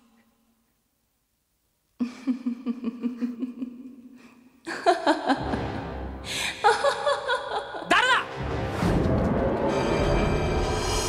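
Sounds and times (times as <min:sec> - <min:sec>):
laughter in quick pulses: 0:02.0 - 0:04.0, 0:06.6 - 0:07.9
ominous music: 0:08.2 - 0:11.0.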